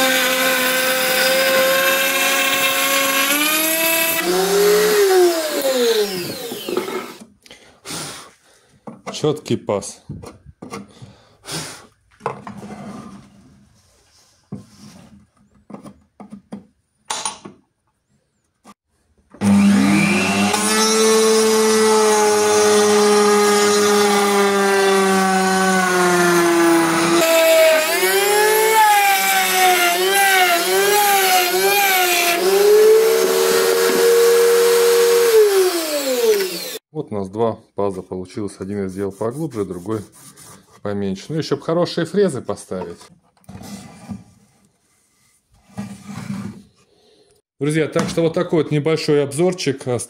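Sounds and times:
router motor whining: 0.0 - 7.2, 19.4 - 36.8
router bit cutting wood: 0.0 - 7.3, 19.3 - 36.9
handling knocks and clicks: 15.2 - 18.0.

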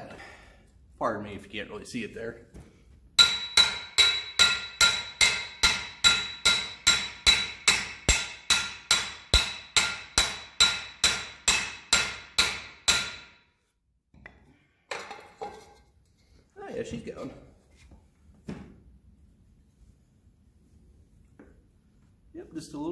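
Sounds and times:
hammer striking steel pipe: 3.2 - 13.5.

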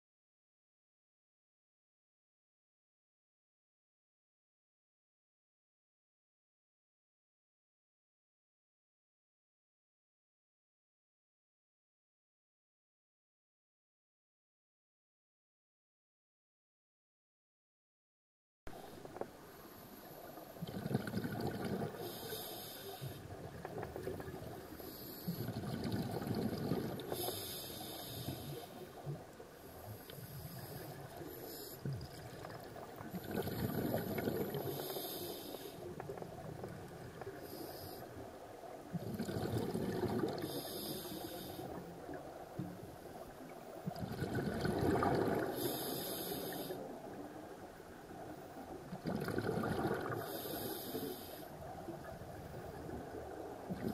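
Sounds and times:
exhaust bubbles gurgling: 20.6 - 22.1, 25.4 - 27.2, 32.0 - 34.9, 38.9 - 40.6, 43.8 - 46.1, 48.9 - 50.6
regulator inhalation hiss: 22.0 - 23.2, 27.0 - 28.8, 34.0 - 35.9, 37.4 - 38.0, 40.4 - 41.8, 45.5 - 46.9, 50.2 - 51.6.

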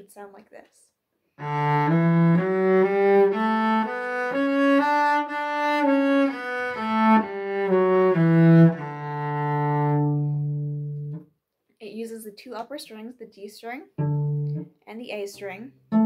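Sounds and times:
cello bowed scale: 1.4 - 11.2, 14.0 - 14.7, 15.4 - 16.0.

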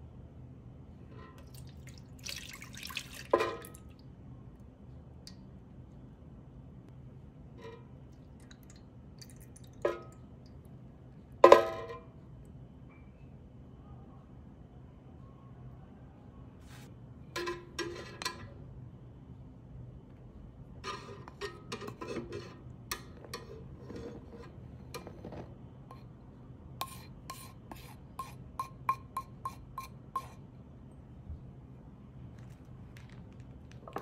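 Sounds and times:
wooden spoon scraping ceramic bowl: 23.2 - 26.1, 26.8 - 30.4
spoon tapping against bowl: 28.2 - 30.4.

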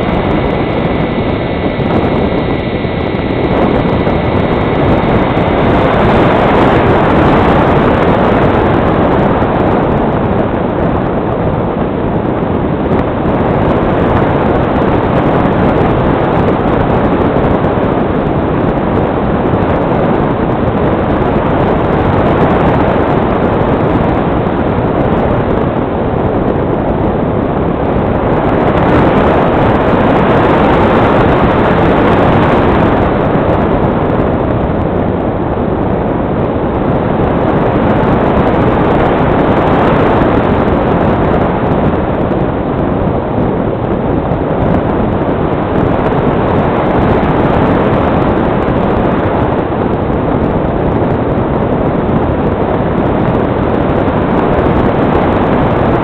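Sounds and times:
electric motor whine: 0.0 - 9.5
rushing airflow: 0.0 - 56.0.

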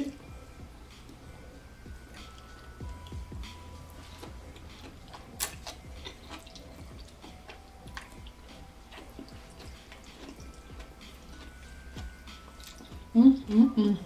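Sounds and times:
chewing noodles wet clicks: 4.0 - 13.1.

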